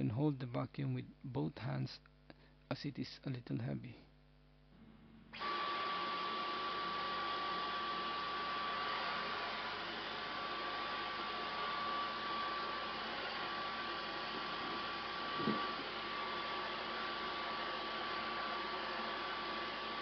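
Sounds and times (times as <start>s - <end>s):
vacuum cleaner motor whine: 4.8s - 20.0s.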